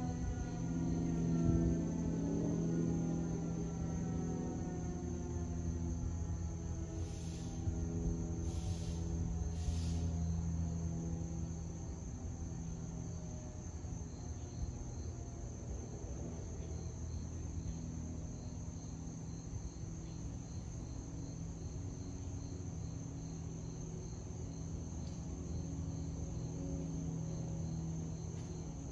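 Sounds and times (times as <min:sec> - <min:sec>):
distant siren winding down: 0:00.0 - 0:12.3
insects chirping: 0:00.0 - 0:28.9
low steady hum: 0:00.0 - 0:28.9.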